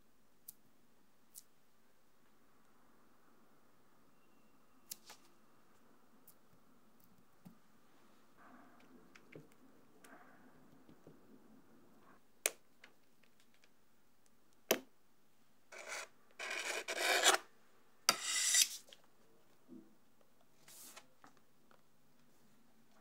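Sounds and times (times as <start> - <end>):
metal knife scraping metal ring: 18.1 - 18.8.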